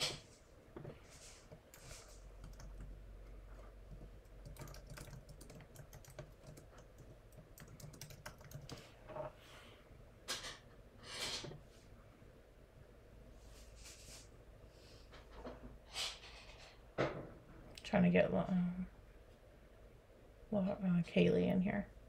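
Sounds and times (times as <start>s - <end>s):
keyboard typing: 1.5s - 8.8s.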